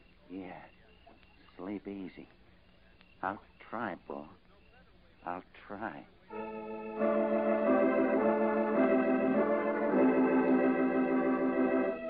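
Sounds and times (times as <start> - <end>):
sustained organ chords: 6.2 - 12.0.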